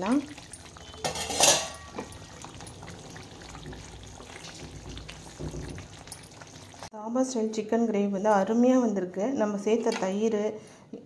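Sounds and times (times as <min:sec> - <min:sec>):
gravy simmering and bubbling: 0:00.0 - 0:06.9.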